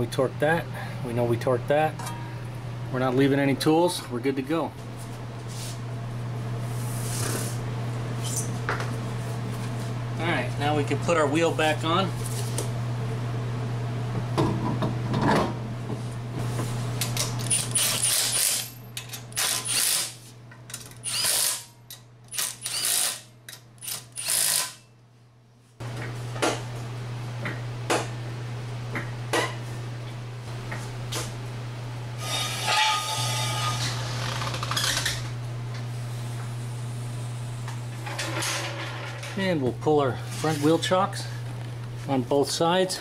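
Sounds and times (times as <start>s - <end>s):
steady low hum: 0.0s - 43.0s
impact wrench spinning: 17.4s - 18.7s, 19.3s - 20.2s, 20.8s - 21.7s, 22.3s - 24.8s.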